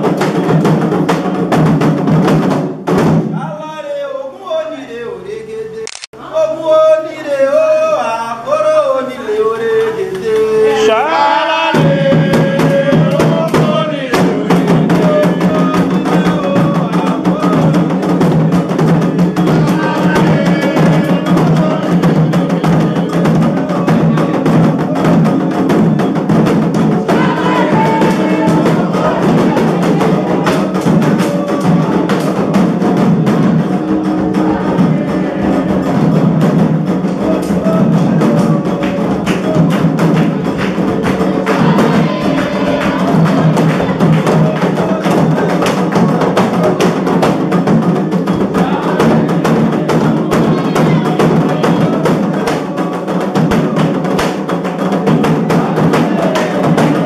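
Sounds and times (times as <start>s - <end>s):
drums and percussion: 0.0s - 4.0s, 9.6s - 57.0s
person singing: 3.4s - 57.0s.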